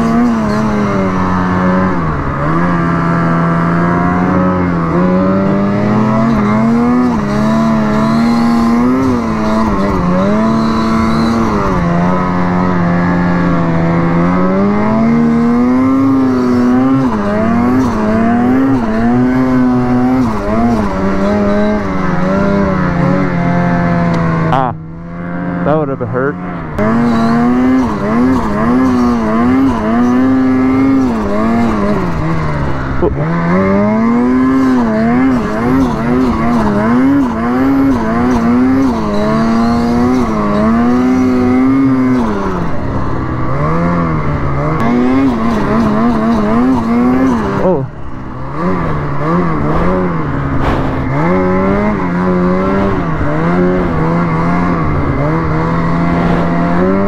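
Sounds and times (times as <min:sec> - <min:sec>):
snowmobile engine running: 0:00.0 - 0:57.0
person talking: 0:25.6 - 0:26.4.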